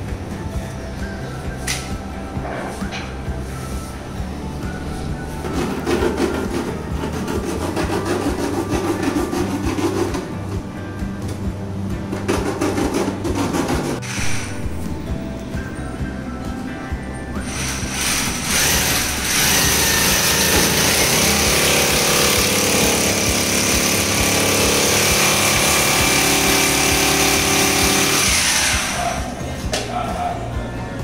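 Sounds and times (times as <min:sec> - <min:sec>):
power tool motor whining: 0:14.0 - 0:14.6, 0:17.4 - 0:29.3.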